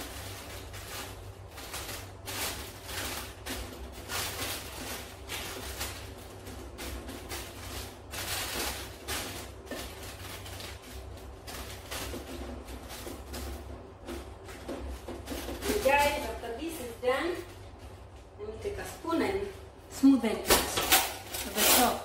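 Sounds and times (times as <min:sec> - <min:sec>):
baking paper rustling: 0:00.0 - 0:22.0
wooden spoon scraping metal tray: 0:20.7 - 0:22.0.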